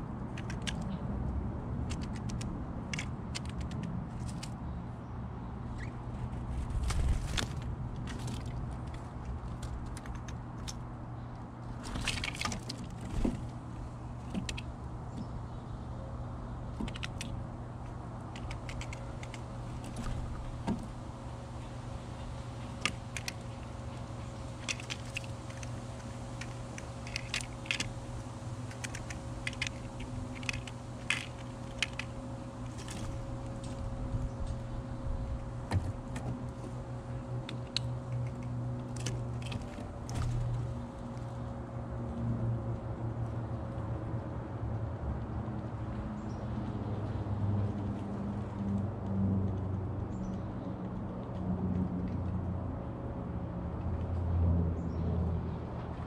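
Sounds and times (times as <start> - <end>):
low background hum: 0.0 - 56.0
bird pecking on wooden feeder: 1.8 - 4.5, 5.8 - 10.9, 11.6 - 15.4, 16.6 - 21.0, 22.2 - 40.8.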